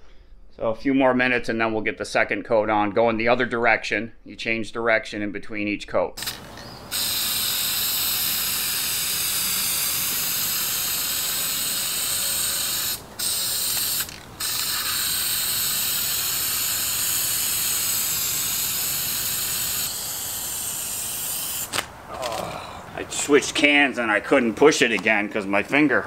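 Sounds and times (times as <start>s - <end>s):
aerosol can spraying hiss: 6.2s - 21.9s.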